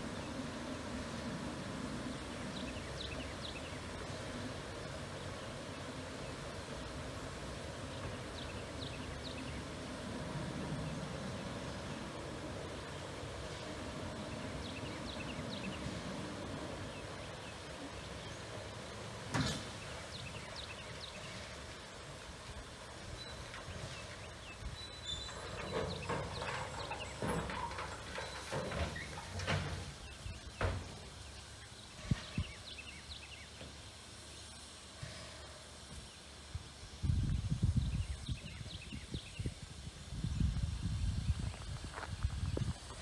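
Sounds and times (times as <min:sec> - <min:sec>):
small birds chirping: 0:07.6 - 0:29.4, 0:30.0 - 0:34.9, 0:37.1 - 0:43.0
metal clanks and knocks: 0:25.2 - 0:30.0.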